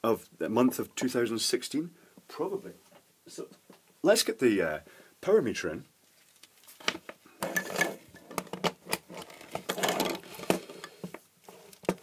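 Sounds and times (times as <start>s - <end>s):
rustling: 6.0s - 12.0s
hard plastic items clattering: 6.8s - 12.0s.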